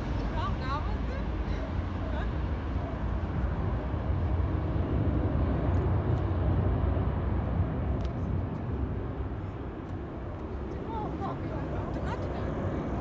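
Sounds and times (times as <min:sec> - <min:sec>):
airliner jet engines rumbling: 0:00.0 - 0:13.0.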